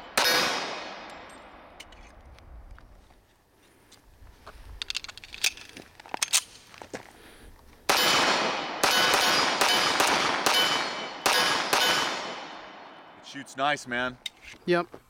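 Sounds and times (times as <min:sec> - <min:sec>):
pistol gunshots with ringing tail: 0:00.0 - 0:01.8, 0:07.9 - 0:13.2.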